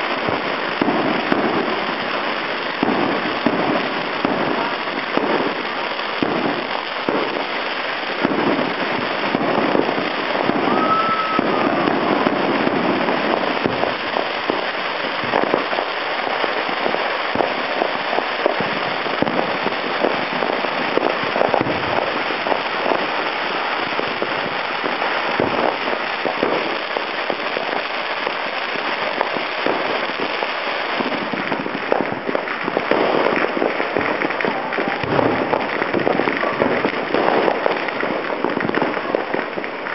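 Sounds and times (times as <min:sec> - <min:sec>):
firecrackers crackling: 0:00.0 - 0:39.9
firework whistle: 0:08.2 - 0:32.4, 0:33.0 - 0:37.8.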